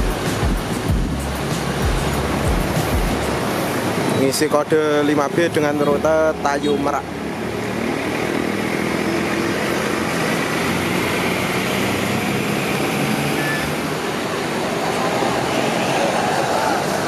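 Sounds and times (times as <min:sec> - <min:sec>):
coach engine running: 0:00.0 - 0:04.2
tyre noise on road: 0:00.0 - 0:17.0.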